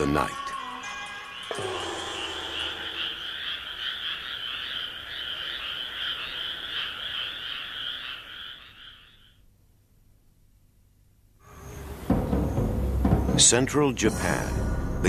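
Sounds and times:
frogs croaking in trills: 0.0 - 9.5.

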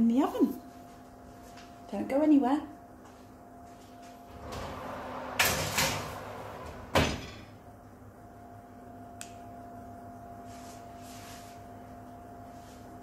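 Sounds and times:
faint steady hum: 0.0 - 13.0
oven door banging shut: 4.4 - 7.6
small click: 9.2 - 9.4.

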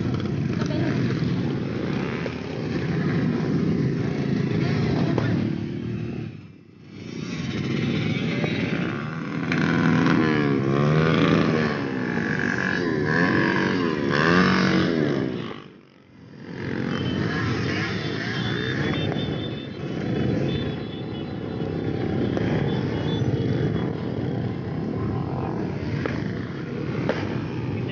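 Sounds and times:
motorcycle engines passing: 0.0 - 27.9.

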